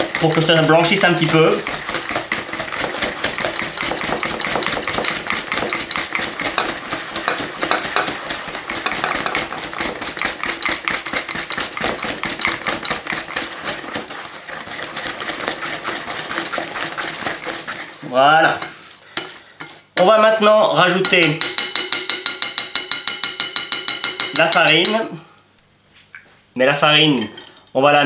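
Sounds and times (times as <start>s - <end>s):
whisk clicking against glass bowl: 0.0s - 17.9s, 21.0s - 25.0s.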